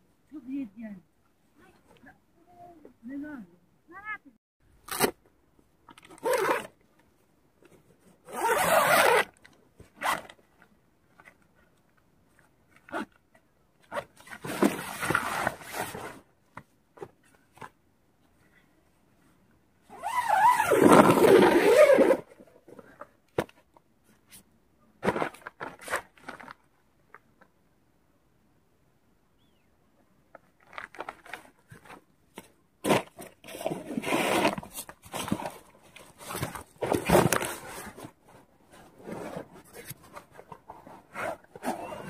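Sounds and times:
tent zipper pulled: 6.0s - 6.8s, 8.2s - 10.4s, 13.8s - 16.2s, 19.9s - 22.5s, 32.8s - 38.2s, 38.9s - 42.0s.

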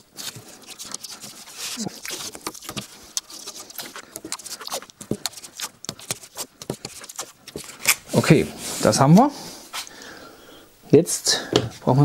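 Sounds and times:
masking tape tearing and crackling: 0.0s - 8.1s.

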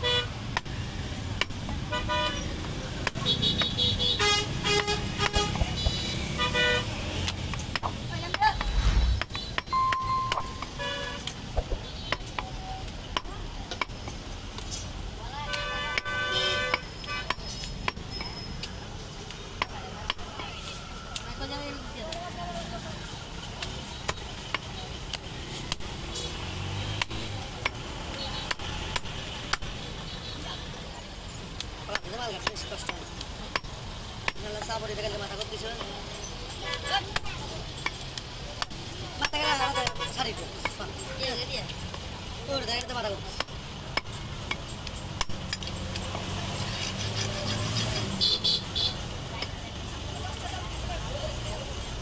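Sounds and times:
cleaver chopping into wood block: 3.0s - 3.8s, 13.1s - 14.2s, 26.8s - 29.7s
cleaver chopping on wooden block: 3.0s - 3.9s, 7.2s - 10.8s, 13.1s - 14.2s, 15.5s - 18.1s.

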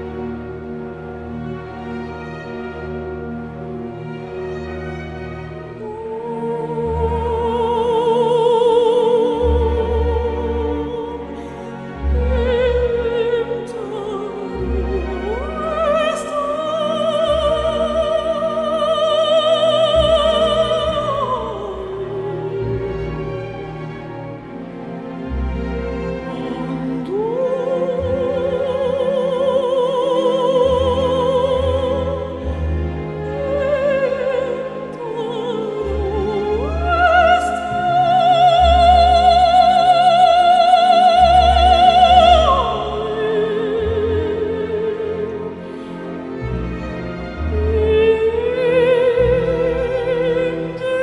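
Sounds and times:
orchestral film music: 0.0s - 51.0s
soprano voice singing: 5.4s - 51.0s.

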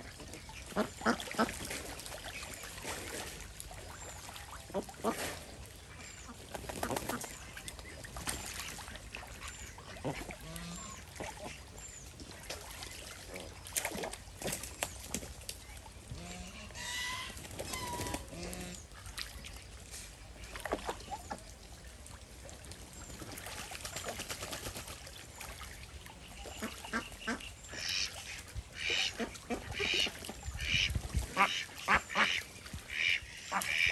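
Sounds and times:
ducks quacking: 0.0s - 1.7s, 4.7s - 7.4s, 8.4s - 11.7s, 26.3s - 33.9s
water splashing: 0.0s - 33.9s.

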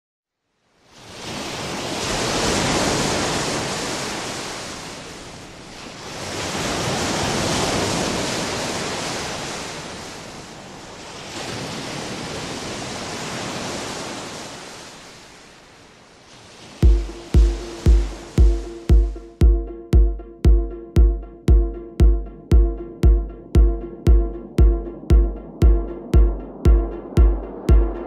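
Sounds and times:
surf washing up a beach: 0.7s - 18.9s.

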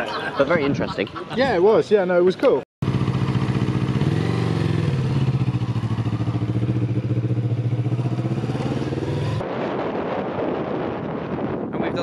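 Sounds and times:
motorcycle engine pulling away: 2.8s - 9.4s.

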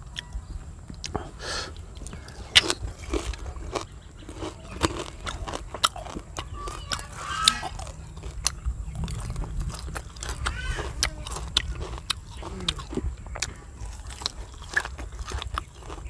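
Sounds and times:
crunching fried fish: 1.0s - 16.0s.

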